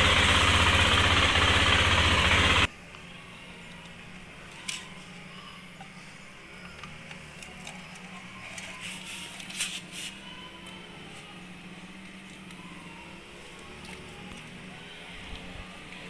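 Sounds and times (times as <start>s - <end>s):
motorcycle engine idling: 0.0s - 2.7s.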